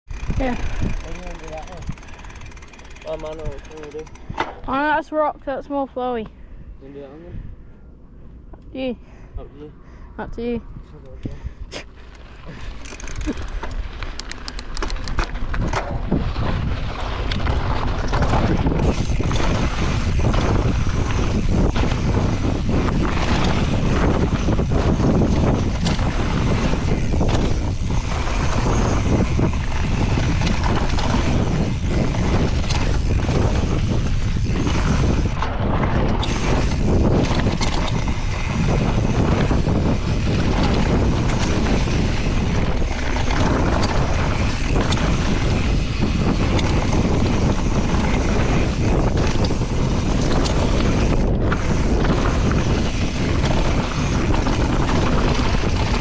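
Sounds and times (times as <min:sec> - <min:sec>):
bike knocking and rattling: 0:00.1 - 0:05.3, 0:11.9 - 0:56.0
wind buffeting microphone: 0:00.1 - 0:56.0
tyres rolling on dirt: 0:12.0 - 0:56.0.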